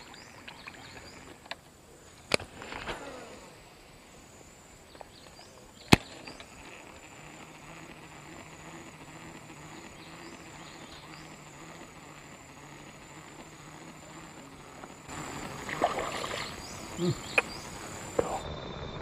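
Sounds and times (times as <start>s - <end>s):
high insect chirping: 0.0s - 1.6s, 3.0s - 19.0s
sharp clicks: 4.9s - 19.0s.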